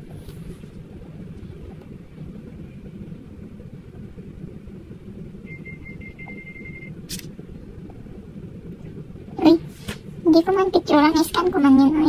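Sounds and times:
low background rumble: 0.0 - 12.0
thin high tone: 5.4 - 7.0
sharp click: 7.1 - 7.3.

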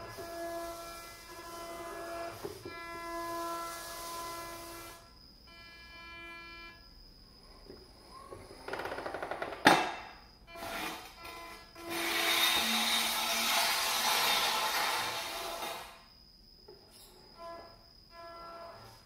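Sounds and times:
electric motors whining: 0.0 - 5.1, 10.5 - 16.0.

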